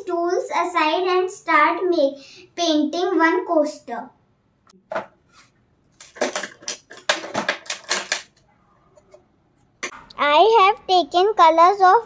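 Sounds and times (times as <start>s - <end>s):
plastic tools clattering on table: 5.9s - 8.4s.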